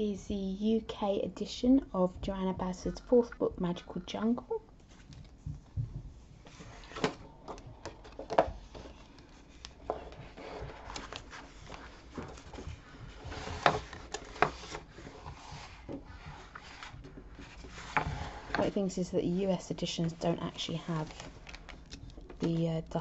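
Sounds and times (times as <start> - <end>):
paper rustling and sliding: 6.4 - 7.2, 8.0 - 18.8.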